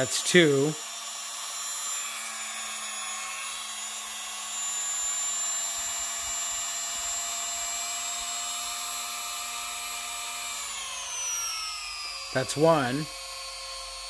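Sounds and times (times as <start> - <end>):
rotary tool motor whine: 0.0 - 14.0.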